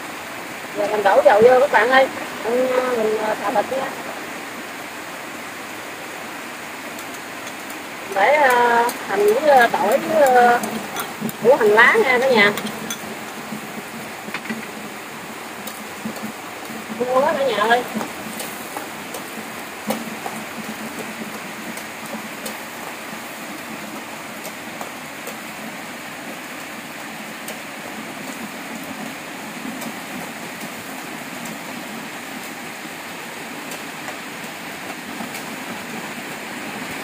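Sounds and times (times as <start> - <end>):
steady rain hiss: 0.0 - 37.0.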